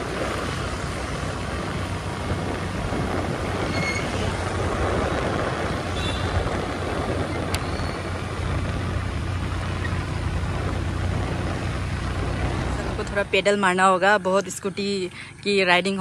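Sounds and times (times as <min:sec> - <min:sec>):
wind rushing: 0:00.0 - 0:13.8
road noise: 0:00.0 - 0:16.0
scooter engine humming: 0:00.0 - 0:16.0.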